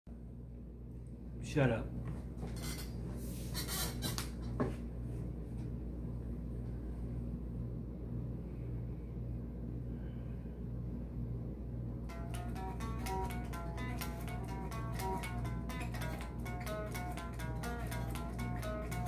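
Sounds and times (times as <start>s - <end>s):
guitar amplifier electrical hum: 0.1s - 19.0s
guitar handling noises: 12.1s - 19.0s.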